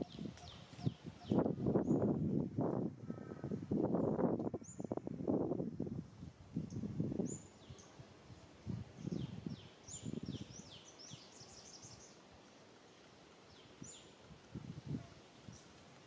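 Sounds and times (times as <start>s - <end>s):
small birds chirping: 0.0s - 2.2s, 4.0s - 5.0s, 6.2s - 14.2s.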